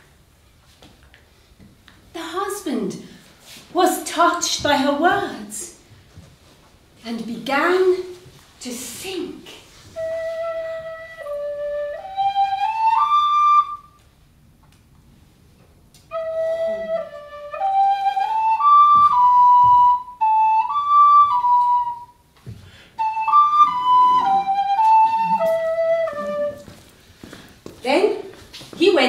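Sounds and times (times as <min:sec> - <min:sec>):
wooden flute melody: 0:09.8 - 0:14.1, 0:16.0 - 0:27.0.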